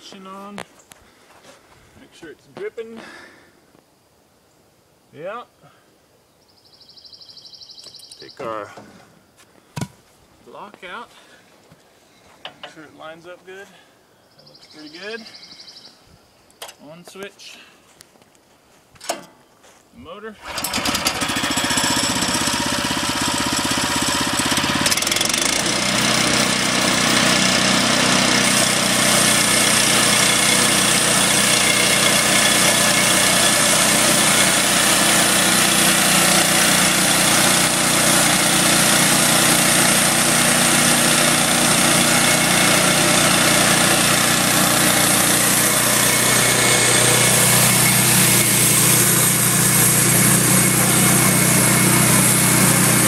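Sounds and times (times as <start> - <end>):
sawmill engine running: 20.4 - 53.0
band blade sawing log: 24.7 - 53.0.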